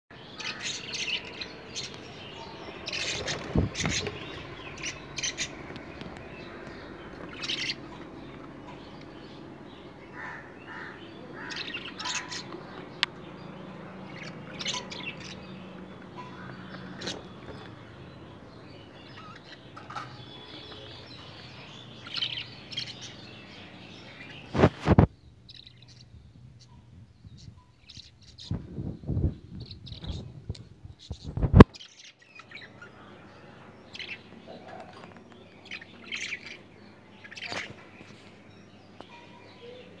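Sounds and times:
quiet bird twittering: 0.1s - 40.0s
parrots chirping: 0.2s - 26.1s.

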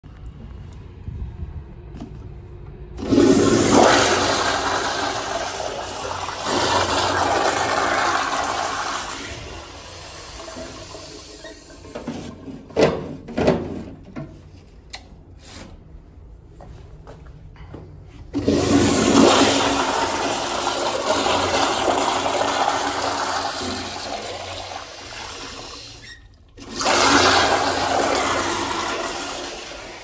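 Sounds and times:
toilet flushing: 3.0s - 14.1s, 18.3s - 30.0s.

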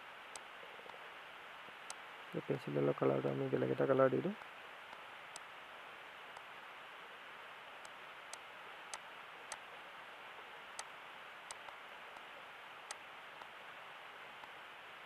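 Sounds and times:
microphone hiss: 0.0s - 15.0s.

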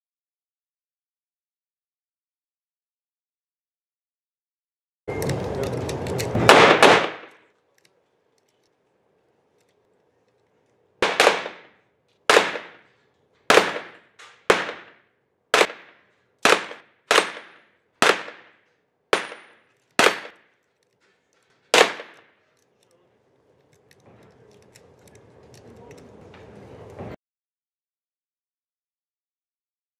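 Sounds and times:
gunshots echoing indoors: 6.4s - 7.4s, 11.0s - 20.6s, 21.7s - 22.4s.

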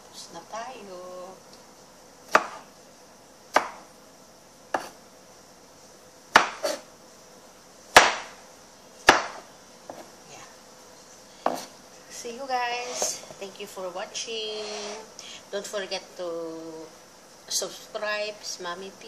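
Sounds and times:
knife chopping on plastic board: 2.3s - 2.6s, 3.5s - 3.8s, 4.7s - 5.0s, 6.3s - 6.8s, 7.9s - 8.4s, 9.0s - 10.1s, 11.4s - 11.7s.

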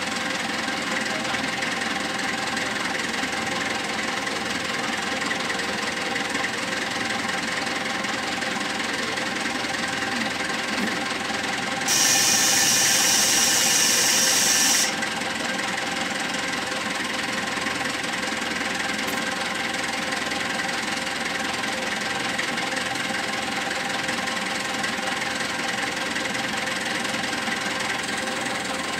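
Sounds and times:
diesel engine idling: 0.0s - 28.9s
loud hiss: 11.9s - 15.0s.

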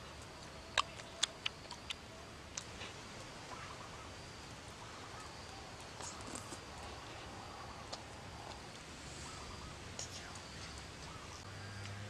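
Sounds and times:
mouth clicks and smacks eating: 0.2s - 3.6s, 5.7s - 8.7s.

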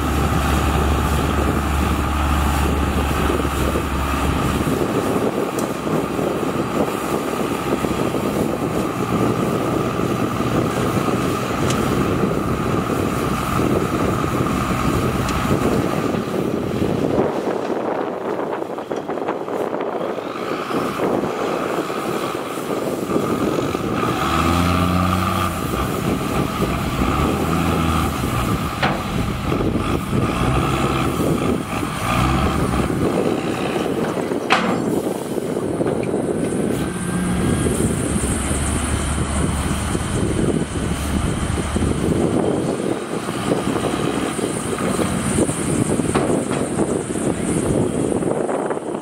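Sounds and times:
diesel engines revving: 0.0s - 49.0s.

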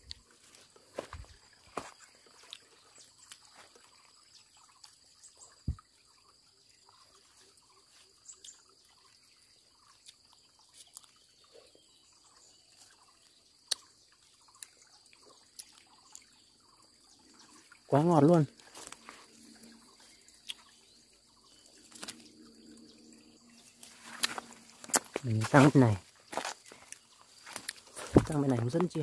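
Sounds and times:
leaves and twigs rustling: 0.0s - 4.0s, 17.9s - 20.7s, 21.4s - 22.8s, 23.5s - 29.0s.

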